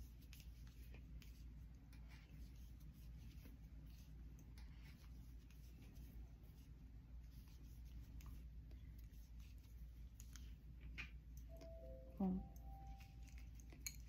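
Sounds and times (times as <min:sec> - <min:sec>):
crochet hook rustling yarn: 0:00.0 - 0:11.0
low steady hum: 0:00.0 - 0:14.0.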